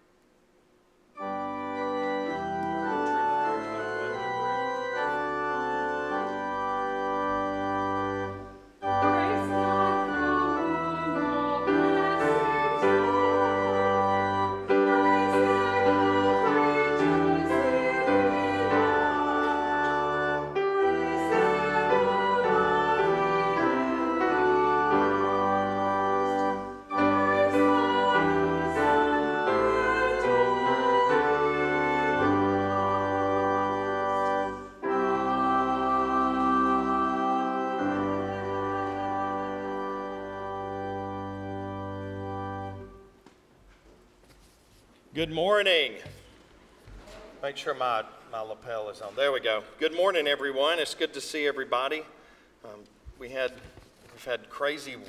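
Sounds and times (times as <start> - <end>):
church organ playing chords: 1.1 - 43.2.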